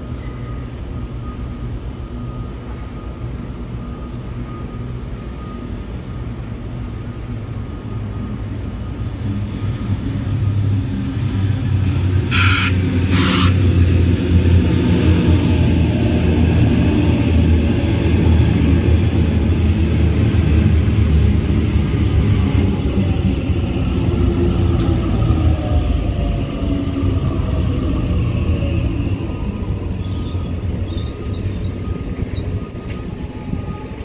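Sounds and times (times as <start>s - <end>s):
train rumbling over rails: 0.0s - 34.0s
train horn toots: 12.3s - 13.8s.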